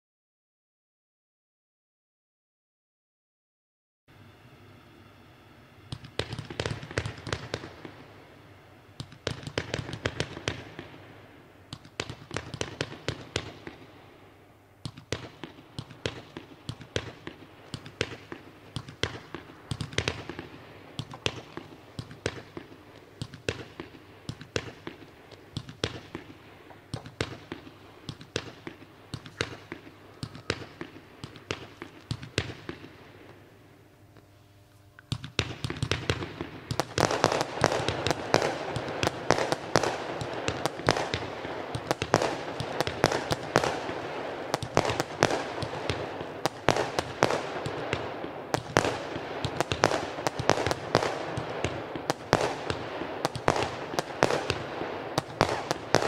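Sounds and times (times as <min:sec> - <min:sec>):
firework battery bangs and bursts: 0:05.9 - 0:08.2, 0:09.0 - 0:11.1, 0:11.7 - 0:14.0, 0:14.8 - 0:33.1, 0:35.1 - 0:56.0.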